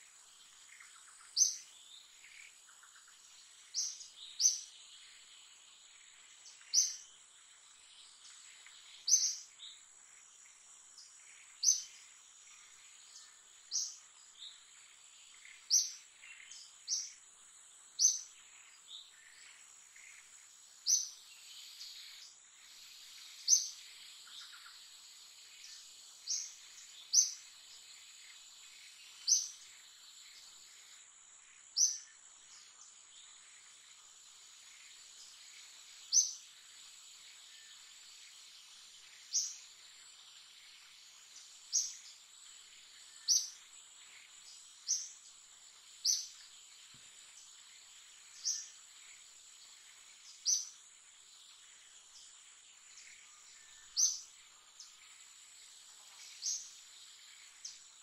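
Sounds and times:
bird high chirp: 0:43.1 - 0:43.6, 0:53.0 - 0:55.0.

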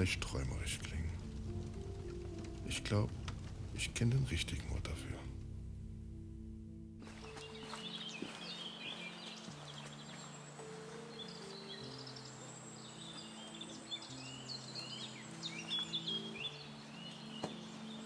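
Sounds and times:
slow low background music: 0:00.0 - 0:18.0
small birds chirping: 0:07.0 - 0:18.0.

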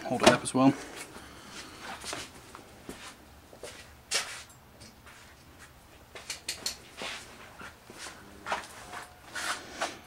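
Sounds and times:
clicks and knocks on a workbench: 0:06.2 - 0:06.8.

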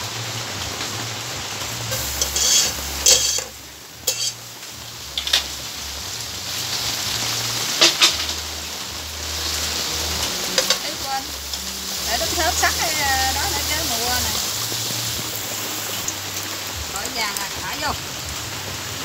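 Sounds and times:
chicken sizzling in a pot: 0:00.0 - 0:19.0
knife clinking against pot: 0:02.2 - 0:03.5, 0:04.1 - 0:04.4.

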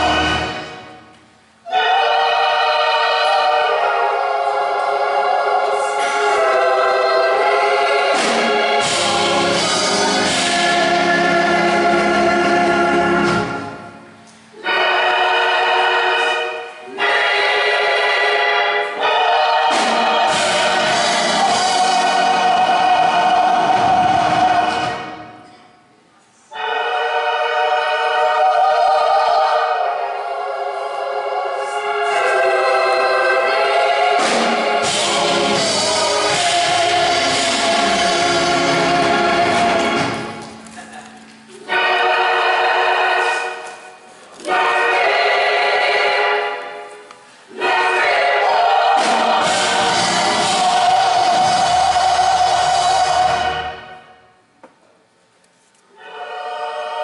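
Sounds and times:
choir singing held chords: 0:00.0 - 0:25.8, 0:26.4 - 0:40.8, 0:41.4 - 0:54.6, 0:55.9 - 0:57.0.

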